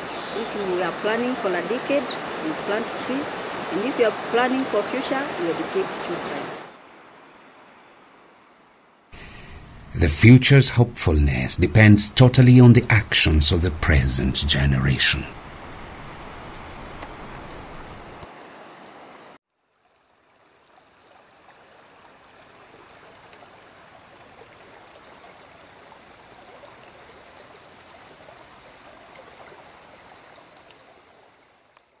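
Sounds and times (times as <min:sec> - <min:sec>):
river rushing over rocks: 0:00.0 - 0:06.8.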